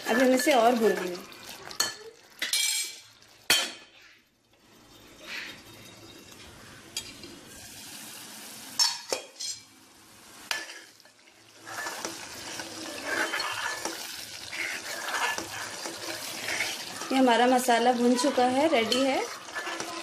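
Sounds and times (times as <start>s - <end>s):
metal spoon stirring and knocking pot: 0.0s - 3.9s, 11.7s - 20.0s
spices sizzling in oil: 0.0s - 3.9s, 4.5s - 20.0s.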